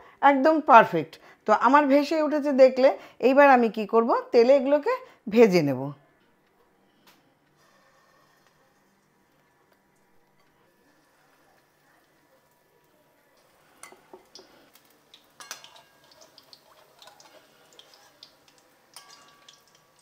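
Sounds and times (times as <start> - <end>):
food crackling in hot oil: 7.6 - 20.0
metal spatula clicking on pan: 13.8 - 20.0.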